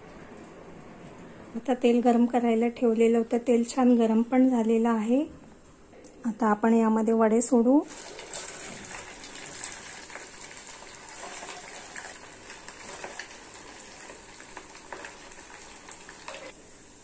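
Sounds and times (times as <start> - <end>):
oil sizzling while deep-frying: 7.8 - 17.0
oil crackles and pops: 7.9 - 16.6.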